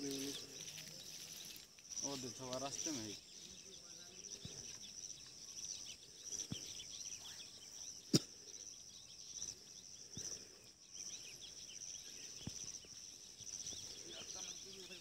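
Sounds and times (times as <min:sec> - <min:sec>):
bird chirps: 0:00.0 - 0:15.0
insects droning: 0:00.0 - 0:15.0.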